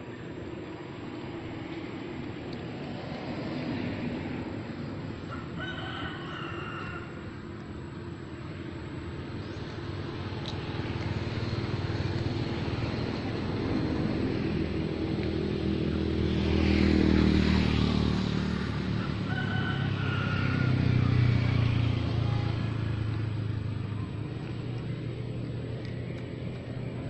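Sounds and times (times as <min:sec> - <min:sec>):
motor vehicle engine running: 0:00.0 - 0:27.0
rooster crowing: 0:05.2 - 0:07.4, 0:18.9 - 0:21.6.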